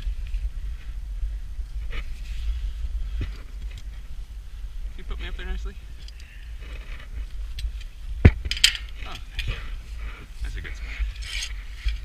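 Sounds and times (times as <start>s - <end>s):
wind buffeting microphone: 0.0s - 12.0s
metal hardware clinking on tower: 7.6s - 9.4s.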